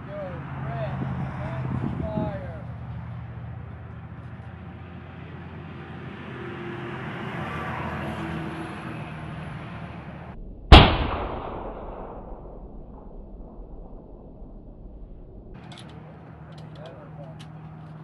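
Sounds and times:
rifle shot: 0:10.7 - 0:14.9
steady background noise: 0:15.2 - 0:18.0.

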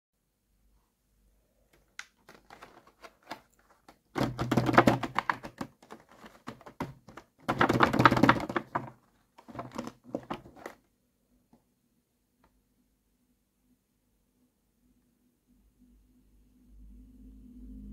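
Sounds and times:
fingertips tapping plastic packaging: 0:01.7 - 0:10.8.

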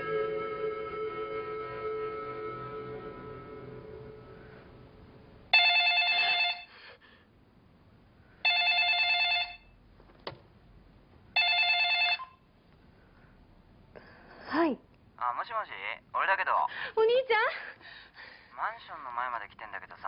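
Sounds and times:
electronic phone ringtone: 0:05.5 - 0:06.7, 0:08.4 - 0:09.8, 0:11.4 - 0:12.4.

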